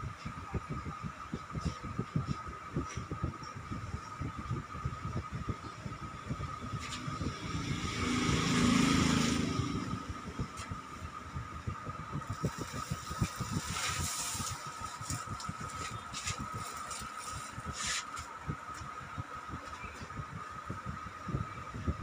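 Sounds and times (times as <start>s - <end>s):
motor vehicle passing: 6.8s - 11.0s.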